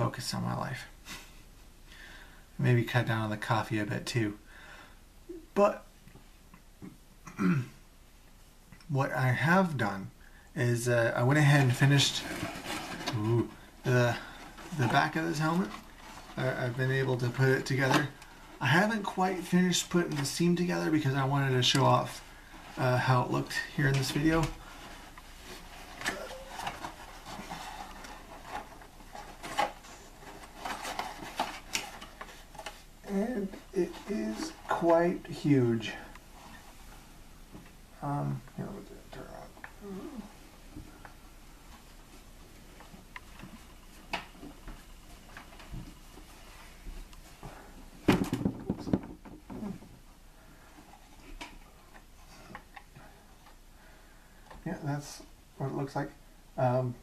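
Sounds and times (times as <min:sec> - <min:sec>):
paper helmet rustling and scraping: 0:10.8 - 0:37.6, 0:40.9 - 0:49.8.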